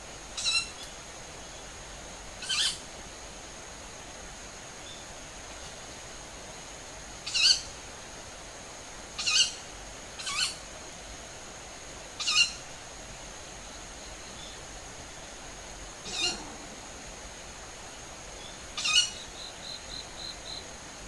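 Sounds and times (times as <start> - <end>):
bird hissing calls: 2.4 - 2.8, 10.2 - 10.6, 16.0 - 17.0, 18.4 - 20.6.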